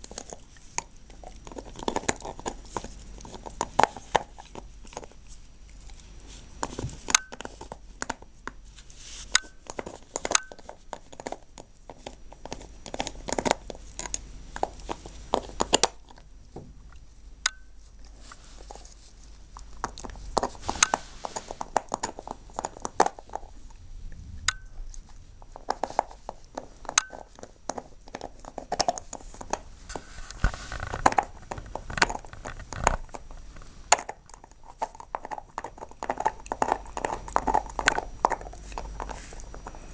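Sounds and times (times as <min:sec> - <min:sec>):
dog teeth crunching on bone: 0:00.0 - 0:08.3, 0:09.4 - 0:16.3, 0:19.5 - 0:23.8, 0:24.6 - 0:29.7, 0:30.3 - 0:39.8.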